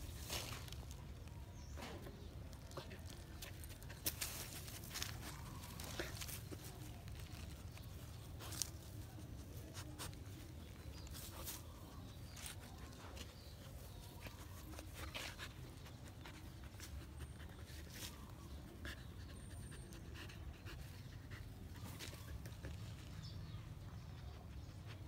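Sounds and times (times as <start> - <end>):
grass and leaves rustling: 0.0 - 18.8
dog panting and sniffing: 9.2 - 25.0.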